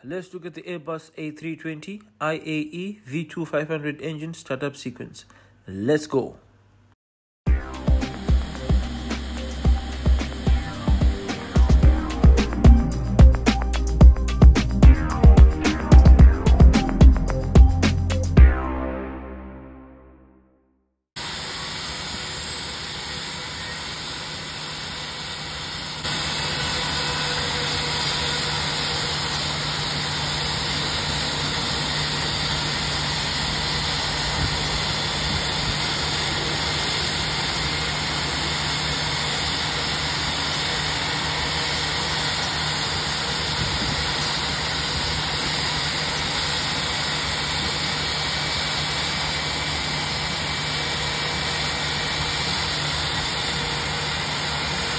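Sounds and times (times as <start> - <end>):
jet engine starting: 7.5 - 14.0, 21.2 - 54.9
rising engine whine: 7.5 - 20.3, 26.0 - 46.7.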